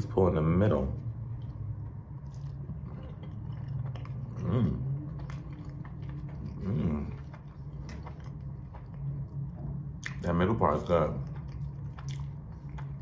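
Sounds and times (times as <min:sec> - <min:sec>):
steady low hum: 0:00.0 - 0:13.0
person humming mm: 0:06.5 - 0:07.2.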